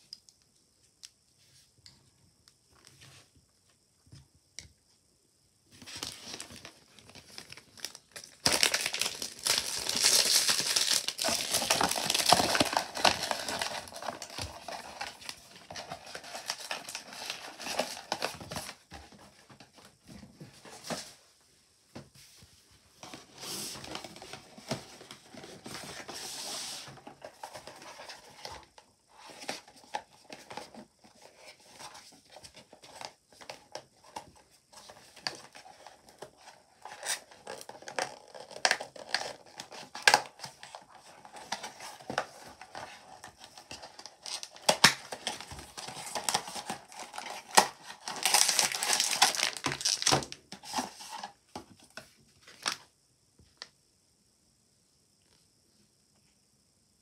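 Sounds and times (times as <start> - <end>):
plastic packaging crinkling: 5.8 - 18.8, 36.8 - 51.3.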